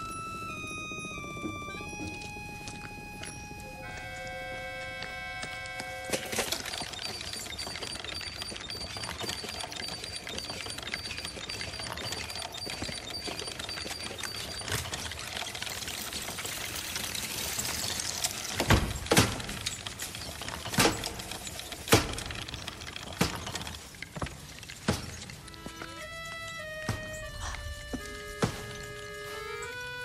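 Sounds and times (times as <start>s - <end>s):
toy wheel ticking: 6.3s - 27.3s.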